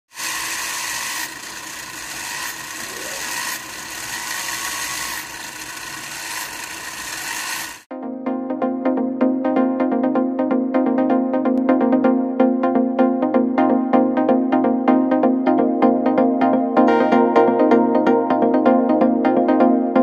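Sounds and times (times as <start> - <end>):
gear motor whirring: 0.1 - 7.9
electronic music with beat: 7.9 - 20.0.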